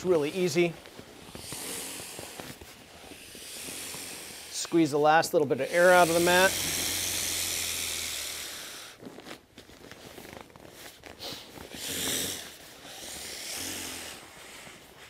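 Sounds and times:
fabric rustling: 0.0s - 3.8s, 8.9s - 11.7s
air hissing from valve: 1.3s - 9.0s.

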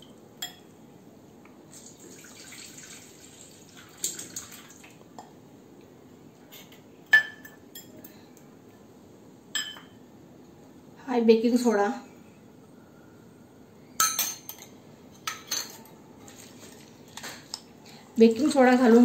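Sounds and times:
glass bowl clinking on steel: 0.4s - 0.7s, 7.1s - 8.0s, 9.5s - 10.0s, 14.0s - 15.9s
water trickling and dripping: 1.7s - 5.0s.

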